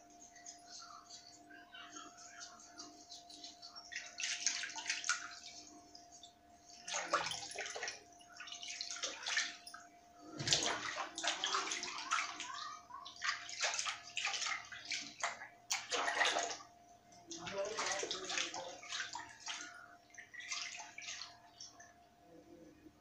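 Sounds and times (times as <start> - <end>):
hands splashing water in basin: 3.2 - 9.7, 10.4 - 16.7, 17.3 - 21.7.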